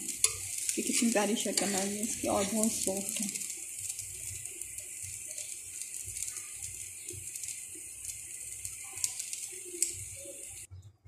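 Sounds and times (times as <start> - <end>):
crackling pops: 0.0 - 10.7
ghee sizzling in a pan: 0.0 - 10.7.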